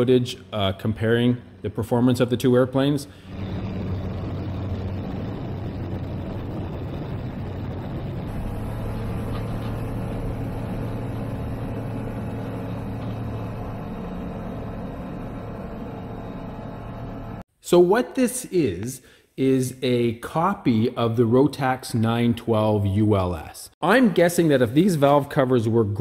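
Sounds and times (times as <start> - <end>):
light aircraft engine drone: 3.1 - 17.4
wind rush: 3.2 - 14.5.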